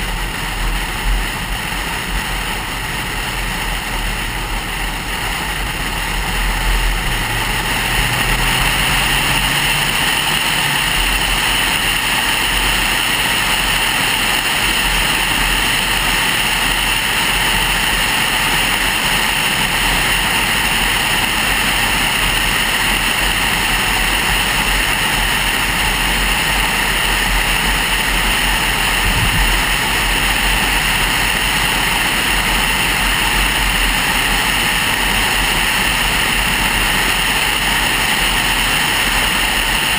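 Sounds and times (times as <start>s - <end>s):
car road noise from inside: 0.0s - 39.9s.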